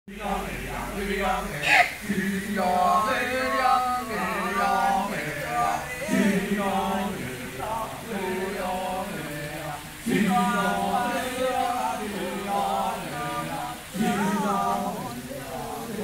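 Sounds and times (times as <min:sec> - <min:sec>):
male chorus chanting: 0:00.1 - 0:16.0.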